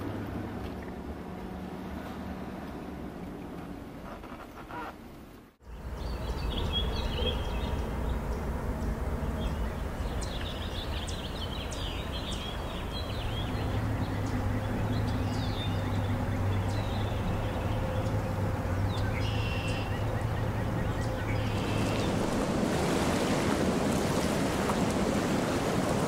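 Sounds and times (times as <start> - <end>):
low outdoor rumble: 0.0 - 26.0
small birds chirping: 5.6 - 22.3.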